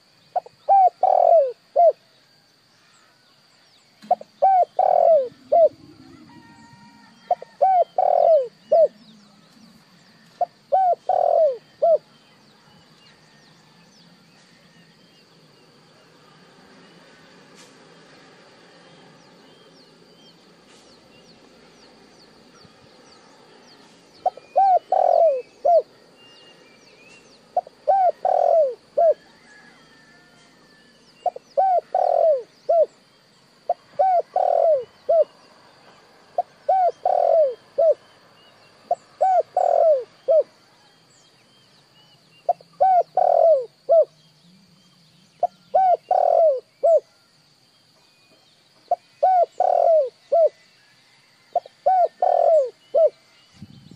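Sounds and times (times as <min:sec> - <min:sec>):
dove cooing: 0:00.4 - 0:02.0, 0:04.0 - 0:09.1, 0:10.2 - 0:12.1, 0:24.2 - 0:26.0, 0:27.5 - 0:30.4, 0:31.2 - 0:33.0, 0:33.7 - 0:35.3, 0:36.4 - 0:38.0, 0:38.9 - 0:40.6, 0:42.5 - 0:44.2, 0:45.4 - 0:47.1, 0:48.9 - 0:50.6, 0:51.6 - 0:53.2.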